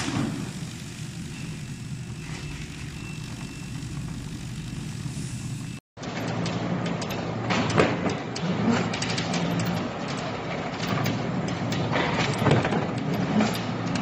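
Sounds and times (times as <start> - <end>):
machine low hum: 0.0 - 5.8
factory din: 0.0 - 10.4
knocks and clatter: 6.0 - 14.0.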